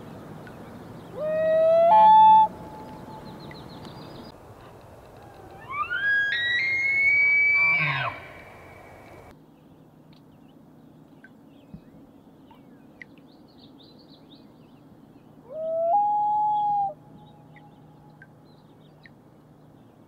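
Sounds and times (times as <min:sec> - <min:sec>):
loon wailing: 0:01.2 - 0:02.6, 0:05.5 - 0:08.4
small birds chirping: 0:02.7 - 0:04.4.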